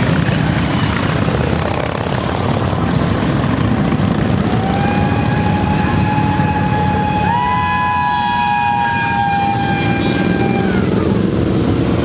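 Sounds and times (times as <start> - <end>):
motorcycles riding past: 0.0 - 12.0.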